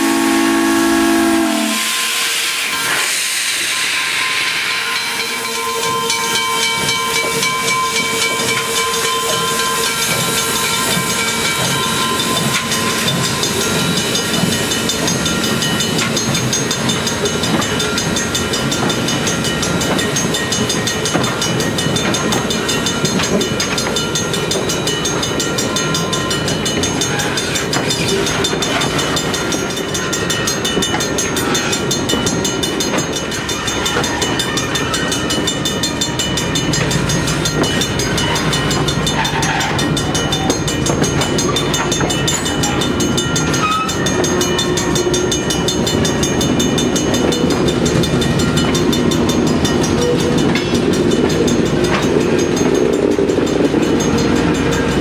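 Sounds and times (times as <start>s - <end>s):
steam whistle blast: 0.0s - 5.7s
steam locomotive exhaust beats: 0.0s - 55.0s
steam hissing from cylinders: 1.3s - 55.0s.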